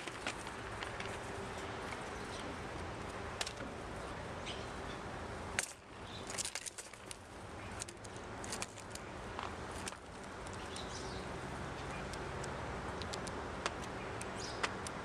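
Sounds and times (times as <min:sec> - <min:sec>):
steady outdoor hiss: 0:00.0 - 0:15.0
light clicks and taps: 0:12.1 - 0:15.0.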